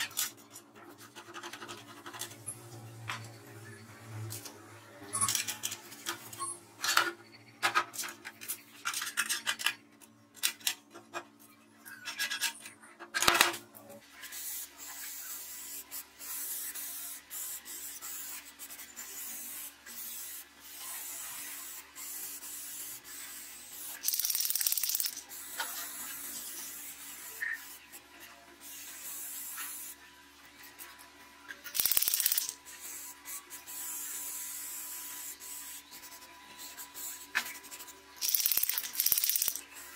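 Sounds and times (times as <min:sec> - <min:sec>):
spray-paint can hissing: 0:14.3 - 0:18.4, 0:19.0 - 0:25.6, 0:26.4 - 0:27.8, 0:31.8 - 0:39.9
steel parts clicking and knocking: 0:24.0 - 0:25.2, 0:31.7 - 0:32.6, 0:38.2 - 0:39.7.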